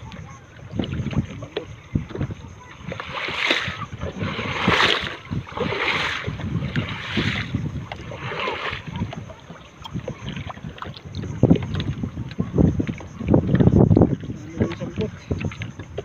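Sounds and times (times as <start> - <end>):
wind rumbling on microphone: 0.0 - 16.0
hand splashing seawater: 2.6 - 12.1.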